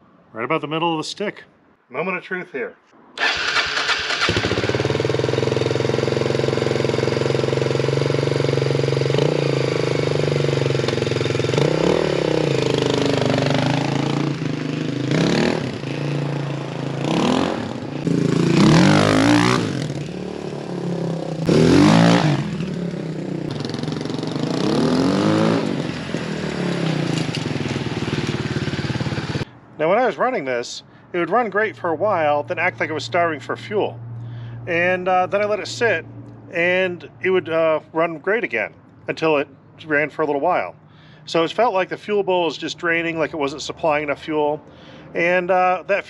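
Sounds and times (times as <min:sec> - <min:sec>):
dirt bike engine revving: 0:03.2 - 0:29.4.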